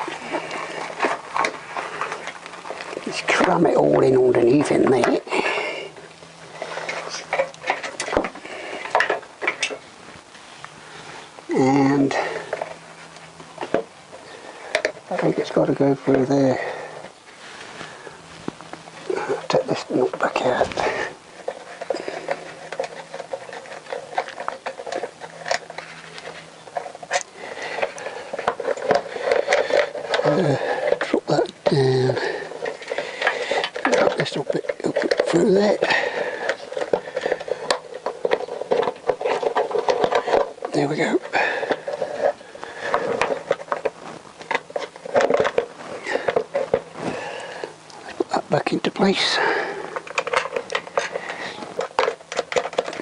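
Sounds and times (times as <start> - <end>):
cables and connectors rattling on frame: 0.0 - 9.8, 18.5 - 53.0
wires rustling and rubbing: 0.0 - 53.0.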